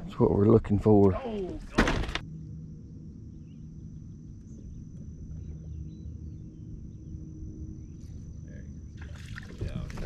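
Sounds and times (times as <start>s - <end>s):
steady low rumble: 2.1s - 10.0s.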